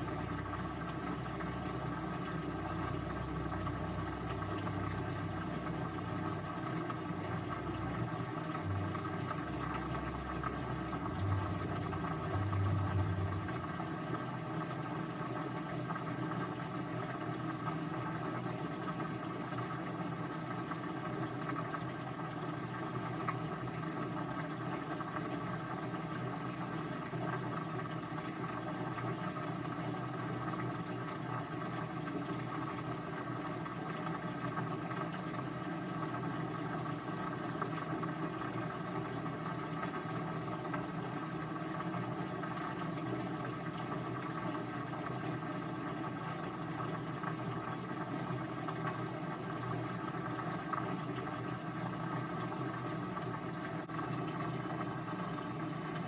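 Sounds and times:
mechanical whir and hum: 0.0 - 56.0
low rumbling: 7.4 - 14.0.

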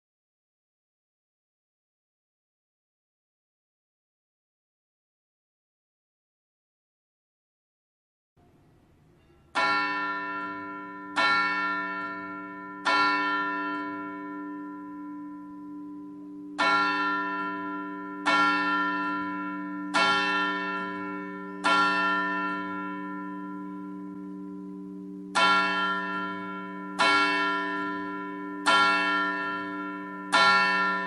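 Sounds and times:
church bell striking: 9.2 - 31.0.

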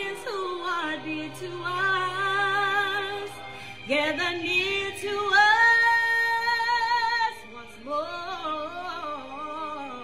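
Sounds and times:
woman singing: 0.0 - 10.0.

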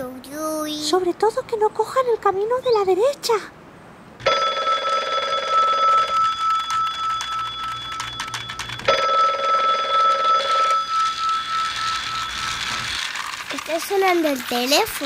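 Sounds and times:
telephone ringing: 4.2 - 13.9.

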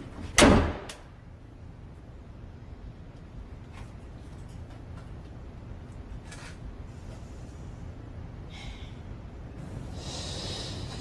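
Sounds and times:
low room rumble: 0.0 - 11.0
soft breaths: 6.8 - 11.0.

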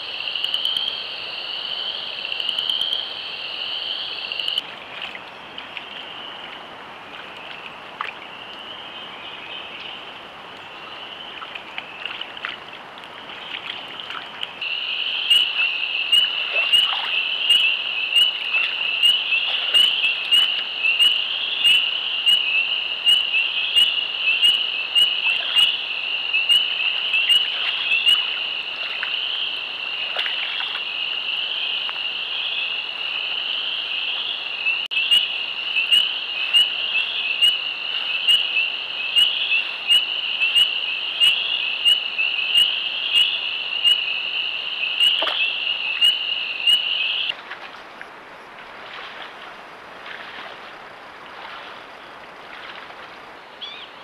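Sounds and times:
frogs trilling in chorus: 14.6 - 47.4, 53.5 - 54.0.

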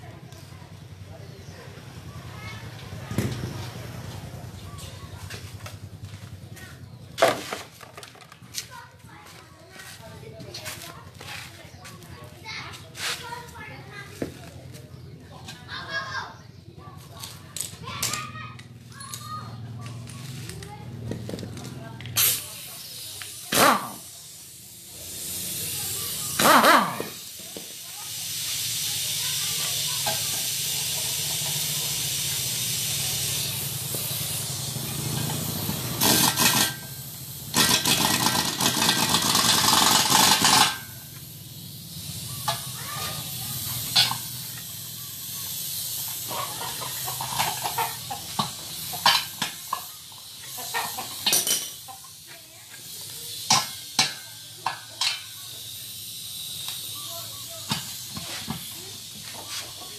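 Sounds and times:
compressed air hissing into tyre: 22.1 - 59.9.

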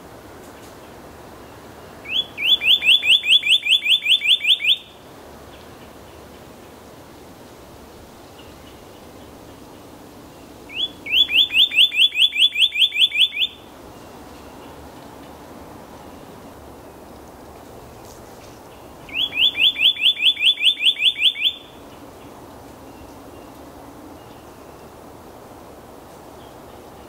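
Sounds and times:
cardinal singing upslurred whistles: 2.1 - 4.9, 10.7 - 13.7, 19.1 - 21.8.

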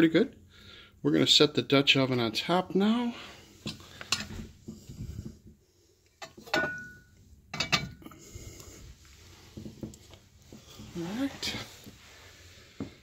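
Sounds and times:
metal pot clanking on grate: 6.2 - 8.0.

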